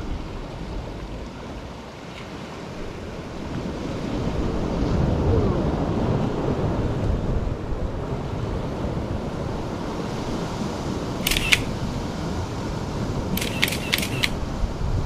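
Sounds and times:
wind: 0.0 - 15.0
camera shutter clicks: 11.2 - 11.8, 13.4 - 14.4.

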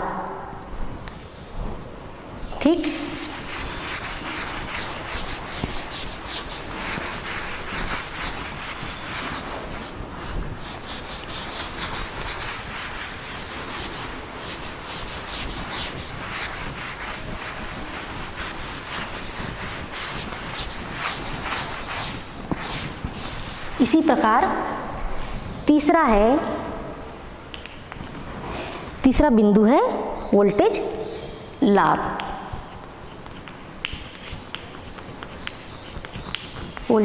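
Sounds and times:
pen scratching on paper: 3.1 - 24.3, 31.7 - 37.0.

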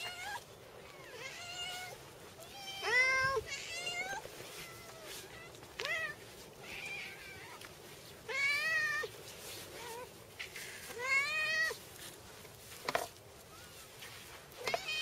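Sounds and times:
cats meowing: 0.0 - 10.2, 10.8 - 11.8, 14.6 - 15.0.

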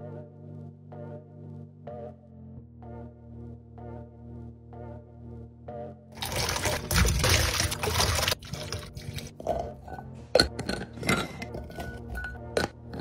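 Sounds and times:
soft background music: 0.0 - 13.0
berries splashing into water: 6.2 - 9.3
glass jars clicking and knocking: 8.5 - 13.0.

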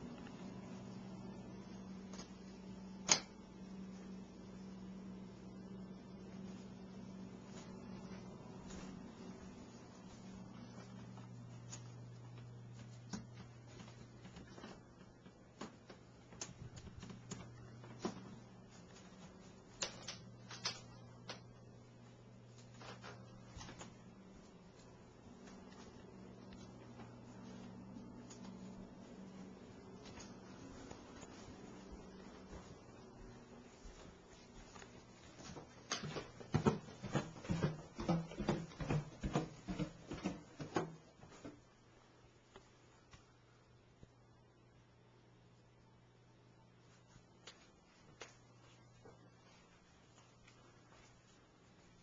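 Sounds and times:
steady low hum: 0.0 - 52.0
footsteps on wooden stairs: 30.0 - 41.6.

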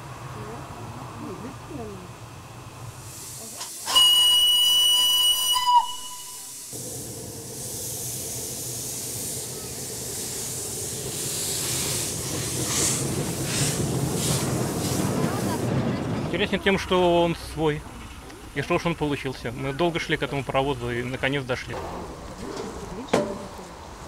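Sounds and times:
steam locomotive running with hissing: 0.0 - 24.0
steam whistle blast: 3.8 - 6.8.

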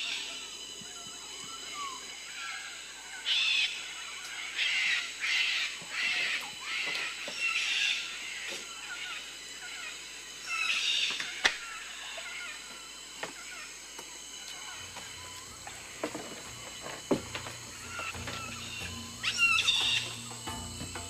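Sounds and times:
birds calling: 0.0 - 21.0
insects droning: 0.0 - 21.0
harsh bird calls: 14.5 - 21.0.

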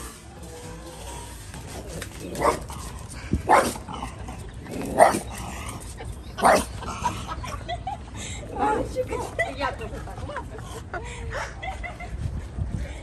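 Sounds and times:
dog barking: 3.5 - 3.8, 6.4 - 6.7.

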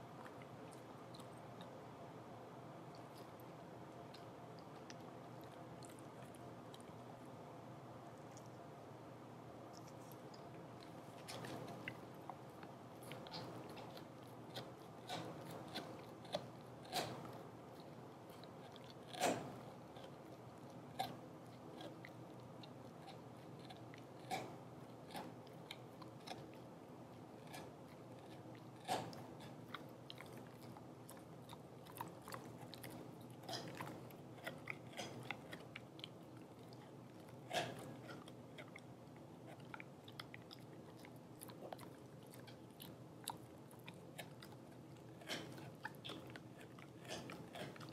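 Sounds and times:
dog chewing rawhide: 9.7 - 47.9.

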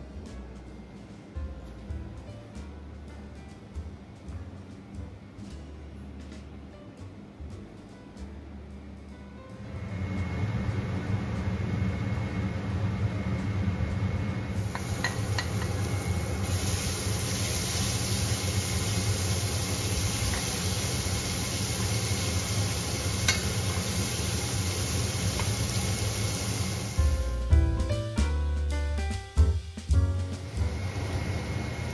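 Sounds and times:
steady low hum: 0.0 - 28.7, 29.3 - 31.9
garlic sizzling in hot oil: 14.6 - 27.4, 29.5 - 31.9.

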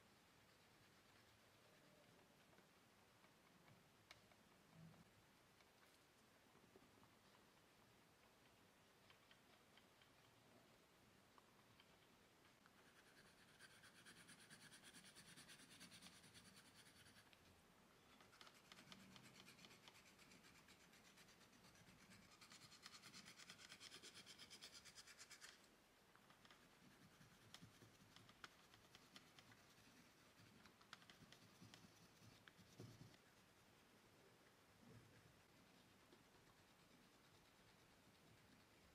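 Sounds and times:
oil pastel scratching paper: 12.6 - 17.4, 18.1 - 33.9, 35.3 - 38.9.

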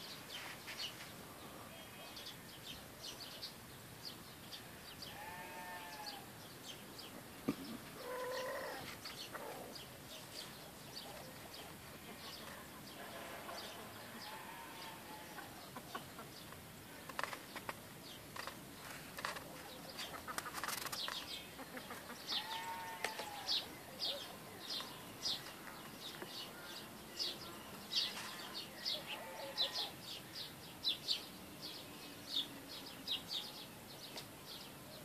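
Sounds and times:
small birds chirping: 0.0 - 35.0
farm animals calling: 4.6 - 6.4, 7.8 - 16.4, 21.4 - 30.2.

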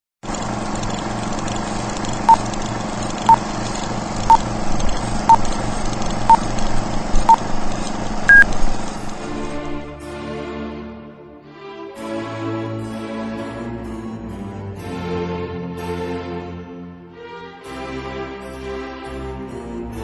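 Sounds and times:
higher-pitched beep: 8.3 - 8.5
short beeps: 8.3 - 8.5
music: 9.0 - 20.0.

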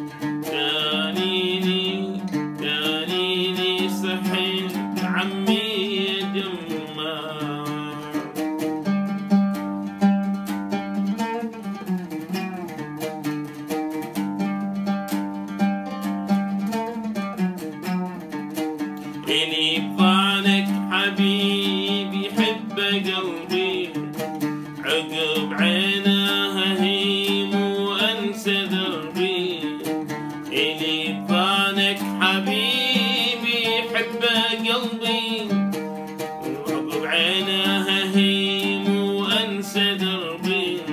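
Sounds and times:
oud plucked notes: 0.0 - 40.9
man singing: 0.4 - 8.6, 19.1 - 40.9.

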